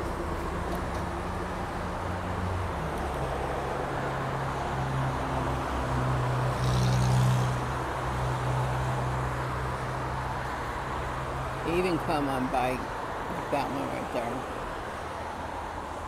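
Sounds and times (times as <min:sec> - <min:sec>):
vehicle passing loudly: 0:00.0 - 0:12.7
road traffic passing: 0:00.0 - 0:16.0.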